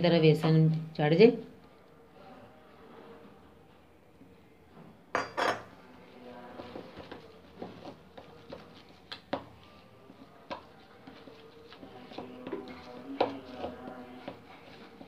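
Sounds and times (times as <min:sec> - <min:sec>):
spoon stirring batter: 0:05.6 - 0:15.0
spoon scraping bowl: 0:10.1 - 0:15.0.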